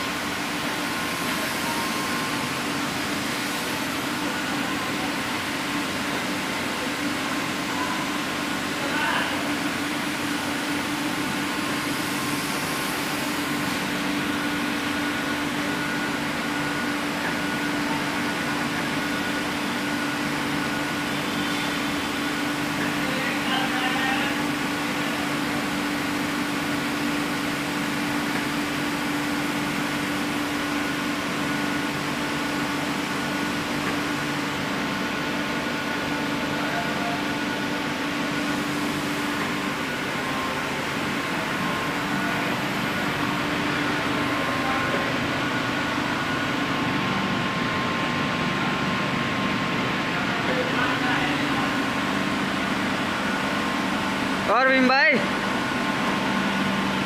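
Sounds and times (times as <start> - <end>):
extrusion machine low drone: 0.0 - 57.0
high machine whine: 0.0 - 57.0.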